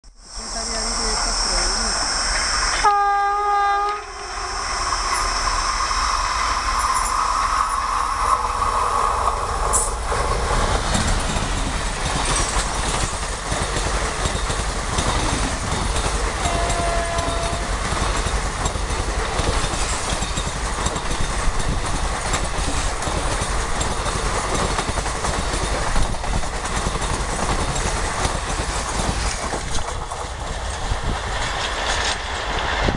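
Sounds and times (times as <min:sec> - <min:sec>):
train wheels rumbling on rails: 0:00.4 - 0:32.9
train horn: 0:02.7 - 0:04.6, 0:16.4 - 0:17.8.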